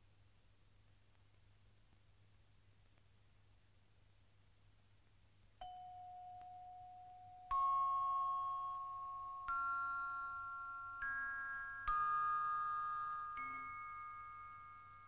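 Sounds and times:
slow bell-like struck notes: 0:05.6 - 0:15.0.

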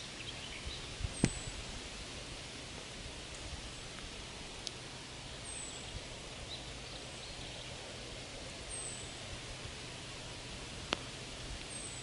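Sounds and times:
faint bird chirps: 0:00.0 - 0:01.6, 0:05.4 - 0:07.9, 0:08.6 - 0:09.2, 0:11.6 - 0:12.0
leaves rustling in wind: 0:00.0 - 0:12.0.

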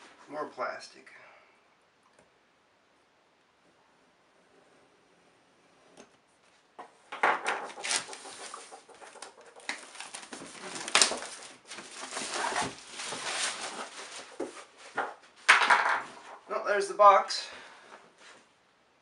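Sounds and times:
plastic wrapping crinkling: 0:07.6 - 0:14.9.

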